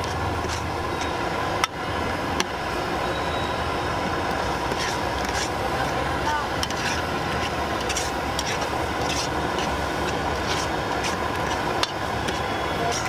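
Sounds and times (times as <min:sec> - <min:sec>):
metal spoon scraping a pot: 0:00.0 - 0:01.2, 0:04.7 - 0:05.6, 0:06.6 - 0:13.0
rumbling background noise: 0:00.0 - 0:13.0.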